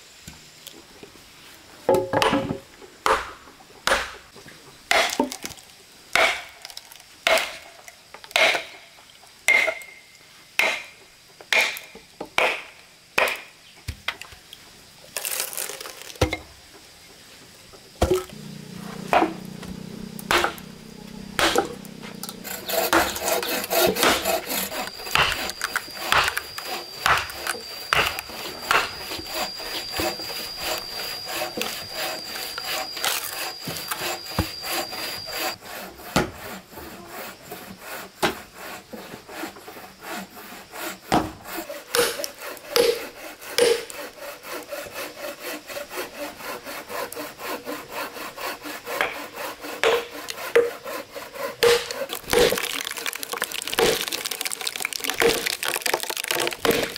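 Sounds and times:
hammer striking metal wedge: 8.4s - 8.7s, 9.5s - 10.0s, 19.0s - 29.0s, 43.6s - 43.9s, 51.6s - 52.0s
rasping strokes on wood: 18.3s - 55.6s
thin high-pitched tone: 24.4s - 35.6s.

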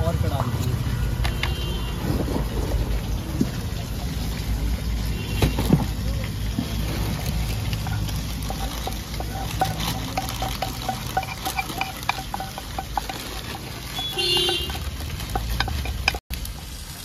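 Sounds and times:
spatula scraping frying pan: 6.7s - 16.2s
spatula tapping pan and plates: 7.7s - 16.2s.

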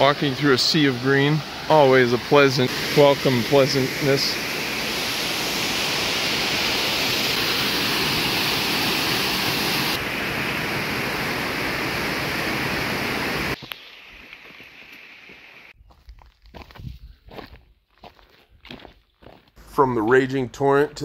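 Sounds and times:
creek water rushing: 0.0s - 15.7s.

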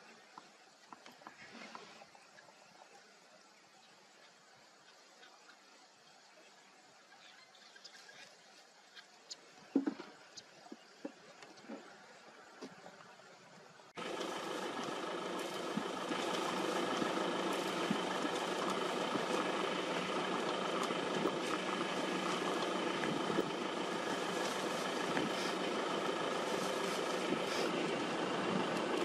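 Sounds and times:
car engine idling: 14.0s - 29.0s.

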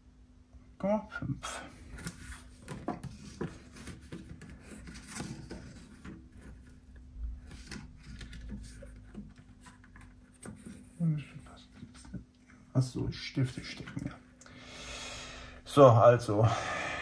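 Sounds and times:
paper card scraping: 1.8s - 6.7s, 7.4s - 11.0s.

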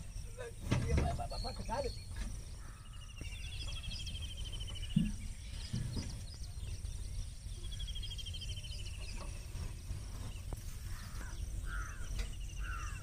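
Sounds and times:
bird trilling: 10.9s - 13.0s.

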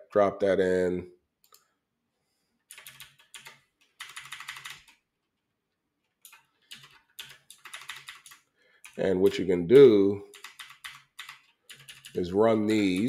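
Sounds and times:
computer keyboard typing: 2.7s - 5.0s, 6.1s - 9.0s, 10.3s - 13.0s.

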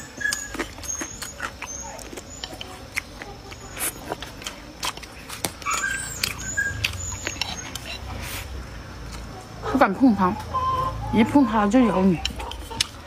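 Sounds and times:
wet chewing and mouth clicks: 0.0s - 9.3s, 12.2s - 13.0s
high chirps: 5.6s - 8.3s.

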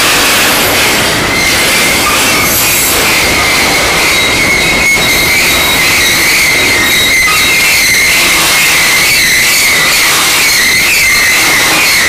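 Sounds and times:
train wheels squealing on rails: 0.0s - 12.0s.

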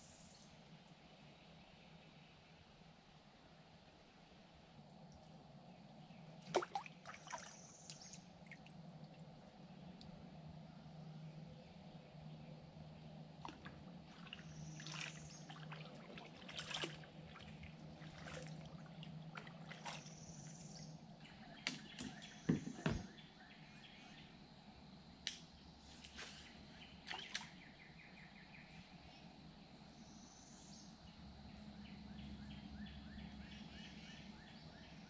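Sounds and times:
paddle splashing in water: 6.5s - 7.6s, 13.4s - 20.3s
water dripping off paddle: 6.5s - 9.2s, 13.4s - 20.0s.

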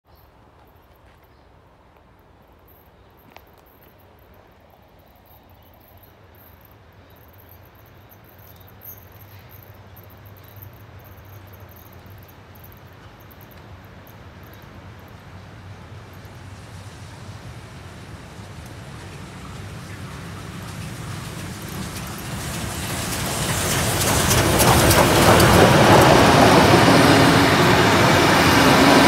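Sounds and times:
insect chirping: 2.3s - 16.4s
steam train rumbling: 7.4s - 29.0s.

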